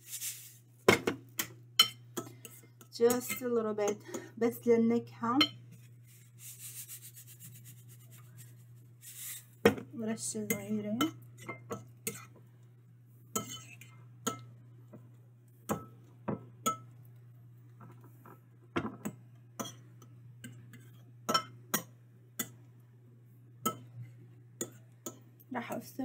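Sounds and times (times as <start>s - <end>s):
metal spoon clinking ceramic bowl: 1.4s - 4.2s, 13.3s - 14.5s.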